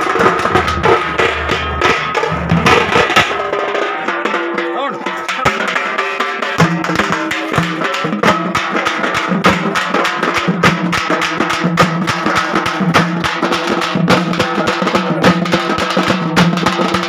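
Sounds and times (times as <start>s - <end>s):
steady low drone: 0.0s - 3.7s
fast dense drumming: 0.0s - 17.0s.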